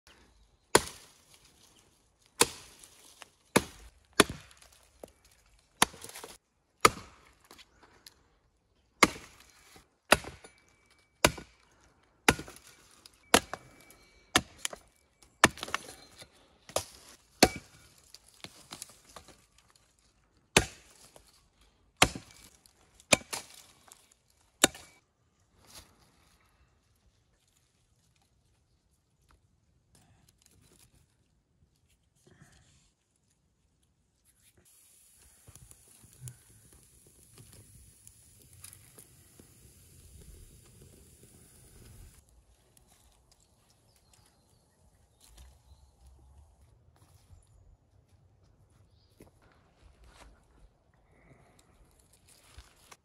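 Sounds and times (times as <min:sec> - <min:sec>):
hatchet chopping wood: 0:00.7 - 0:01.1, 0:02.4 - 0:02.9, 0:03.5 - 0:04.8, 0:05.8 - 0:07.6, 0:09.0 - 0:09.5, 0:10.1 - 0:10.6, 0:11.2 - 0:11.6, 0:12.2 - 0:12.7, 0:13.3 - 0:13.6, 0:14.3 - 0:14.8, 0:15.4 - 0:16.0, 0:16.7 - 0:17.8, 0:20.5 - 0:21.0, 0:22.0 - 0:23.7, 0:24.6 - 0:25.0.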